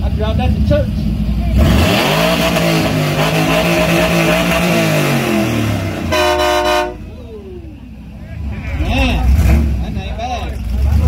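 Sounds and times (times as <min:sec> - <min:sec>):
truck engine revving: 0:00.0 - 0:11.0
truck horn blast: 0:02.8 - 0:07.1.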